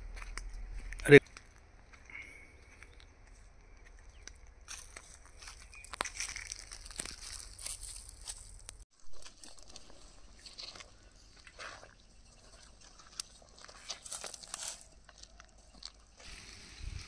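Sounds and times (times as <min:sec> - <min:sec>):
broth boiling with crackles: 0:08.2 - 0:17.0.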